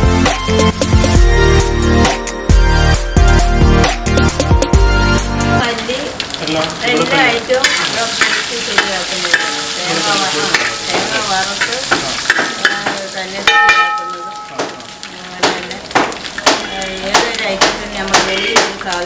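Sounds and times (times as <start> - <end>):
electronic music: 0.0 - 5.6
oil sizzling and crackling in pan: 4.0 - 19.0
metal ladle scraping pan: 7.6 - 15.0.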